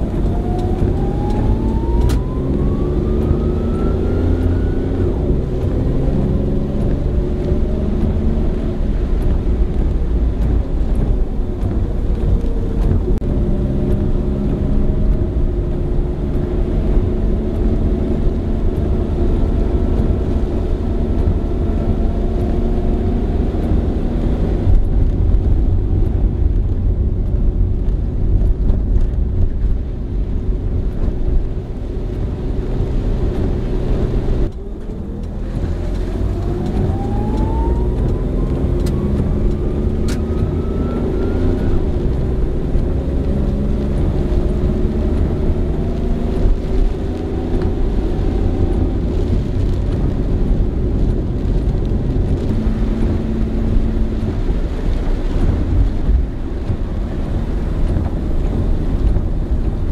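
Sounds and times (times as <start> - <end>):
whine rising in pitch: 0.0 - 26.1, 31.1 - 56.7
car engine and tyres rumbling: 0.0 - 59.9.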